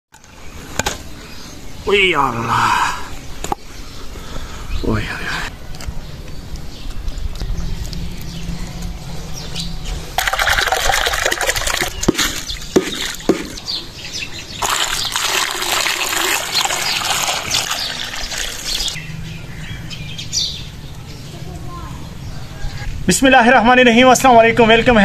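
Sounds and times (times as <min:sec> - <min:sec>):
water pouring and splashing into bowls: 0:10.2 - 0:13.5, 0:14.5 - 0:19.0
sharp knocks: 0:12.0 - 0:13.8.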